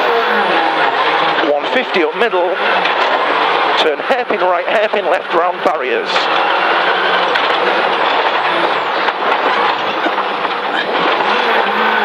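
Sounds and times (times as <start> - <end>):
car engine revving: 0.0 - 12.0
road and tyre noise: 0.0 - 12.0.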